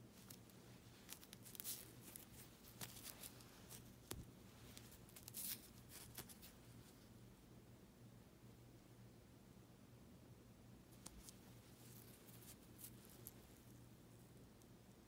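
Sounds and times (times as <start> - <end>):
fabric rustling and crinkling: 0.0 - 7.0, 11.0 - 13.8
low steady hum: 0.0 - 15.0.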